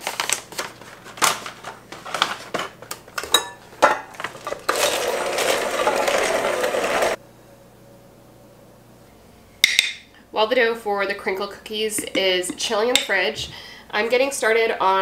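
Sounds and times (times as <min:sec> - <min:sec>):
electric hand mixer running: 0:04.6 - 0:07.2.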